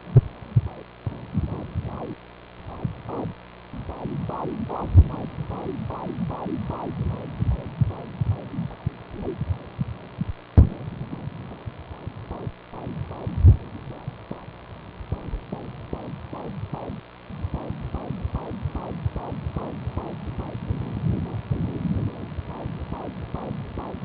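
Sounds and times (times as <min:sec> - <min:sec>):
fetal heartbeat doppler whooshing pulses: 0:00.0 - 0:24.0
heavy thumps: 0:07.0 - 0:11.3.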